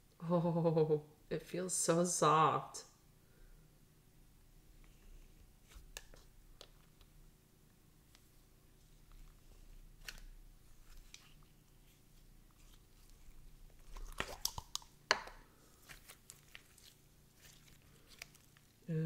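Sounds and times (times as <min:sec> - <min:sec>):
slime squished by hand: 0:09.1 - 0:18.8
sticky crackles and pops: 0:13.0 - 0:18.8.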